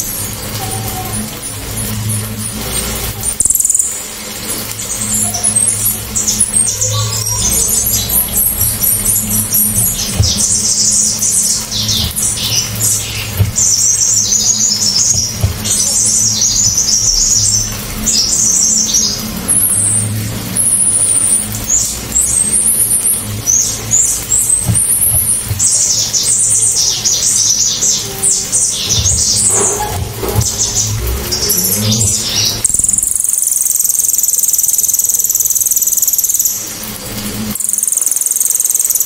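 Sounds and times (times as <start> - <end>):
songbird trilling: 3.3 - 4.0, 20.6 - 36.6, 37.6 - 39.0.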